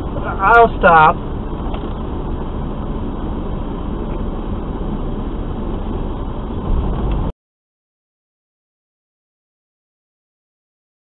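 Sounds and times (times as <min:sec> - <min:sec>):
truck engine rumble: 0:00.0 - 0:07.3.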